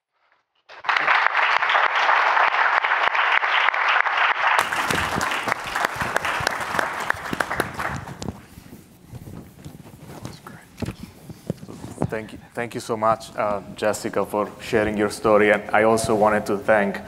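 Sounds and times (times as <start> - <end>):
audience applauding: 0.7 - 8.3.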